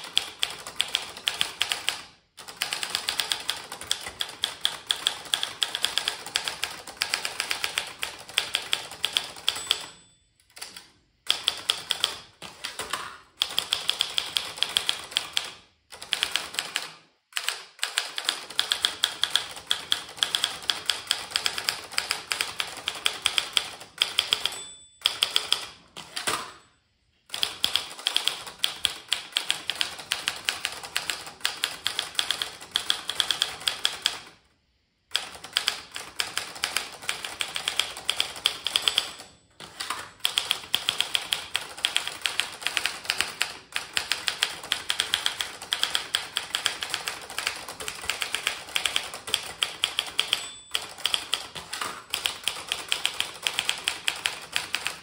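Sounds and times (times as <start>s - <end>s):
manual typewriter key clacks: 35.2s - 55.0s.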